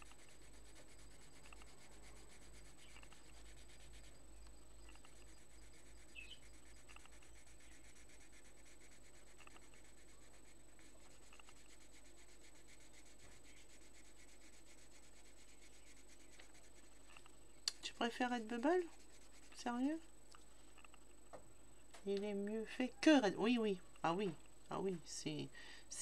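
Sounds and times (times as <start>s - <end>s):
pencil scratching on paper: 0.0s - 20.1s.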